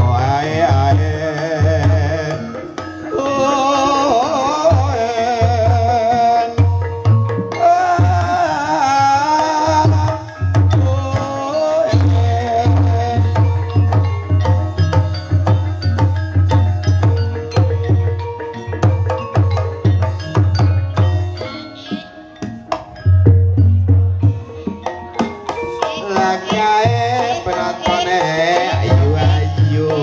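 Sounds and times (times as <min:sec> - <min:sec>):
person singing: 0:00.0 - 0:14.2, 0:24.3 - 0:30.0
hand drums: 0:00.0 - 0:30.0.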